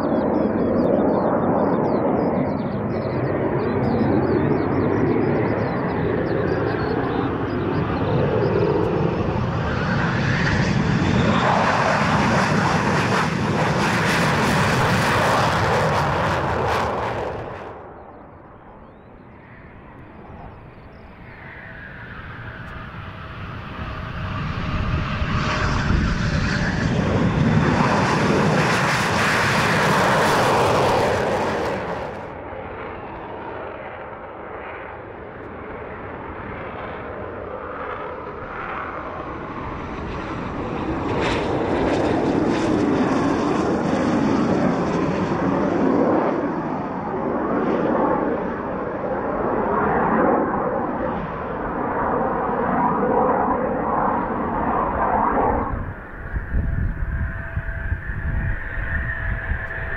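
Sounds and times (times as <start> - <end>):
jet engines roaring: 0.0 - 59.9
landing jet engines rumbling: 0.0 - 59.9.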